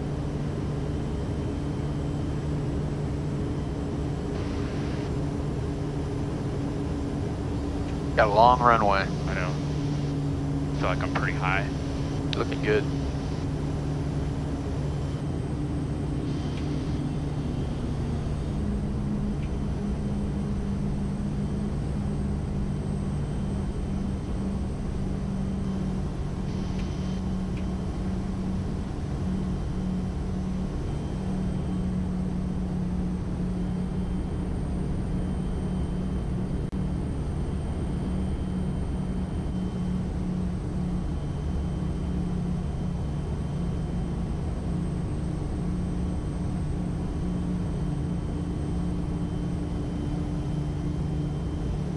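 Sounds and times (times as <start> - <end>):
turboprop engine droning in cabin: 0.0 - 51.9.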